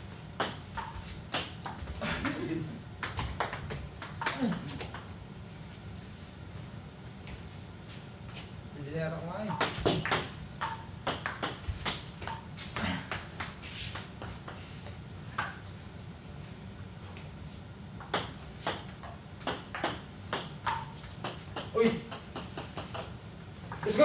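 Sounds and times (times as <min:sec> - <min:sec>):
low steady hum: 0:00.0 - 0:24.0
table tennis ball clicking: 0:09.5 - 0:12.4, 0:18.0 - 0:23.2.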